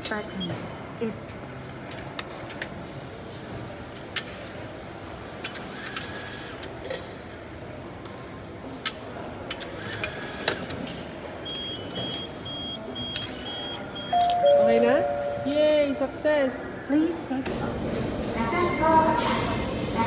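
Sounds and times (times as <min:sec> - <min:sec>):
machine high beeps: 0:11.5 - 0:15.6.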